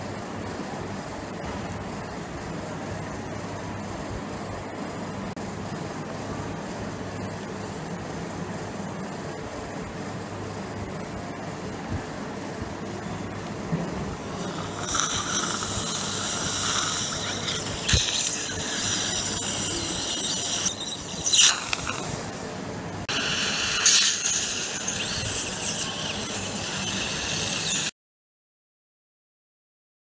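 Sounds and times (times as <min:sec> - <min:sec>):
surgical suction hiss: 0:14.1 - 0:27.9.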